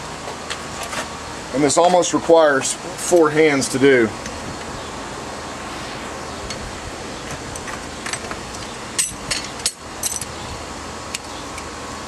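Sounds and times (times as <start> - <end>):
steady background hum: 3.8 - 10.7.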